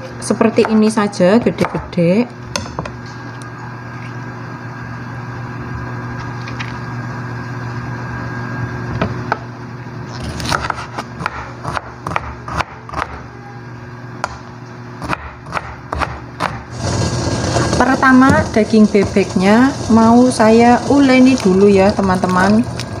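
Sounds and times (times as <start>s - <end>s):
steady background hum: 0.0s - 23.0s
knife chopping on cutting board: 10.4s - 13.2s, 15.0s - 16.6s.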